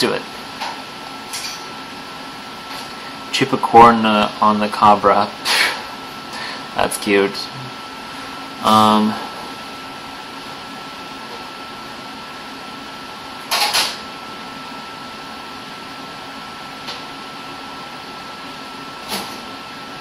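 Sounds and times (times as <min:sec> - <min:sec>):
person breathing out: 0:05.5 - 0:06.7.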